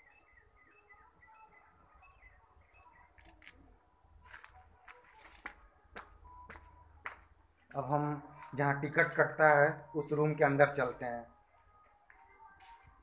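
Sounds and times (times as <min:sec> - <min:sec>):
faint birds chirping: 0:00.0 - 0:04.2.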